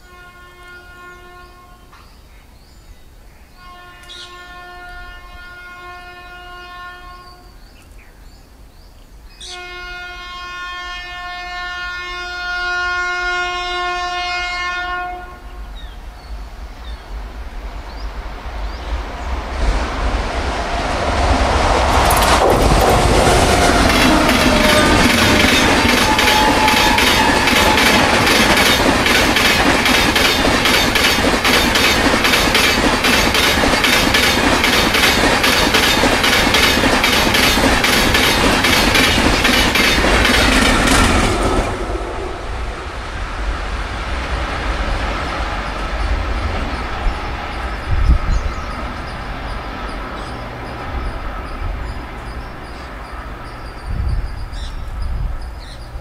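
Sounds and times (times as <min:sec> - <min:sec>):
distant train rumble: 0:00.0 - 0:56.0
train wheels clattering over rail joints: 0:21.8 - 0:41.8.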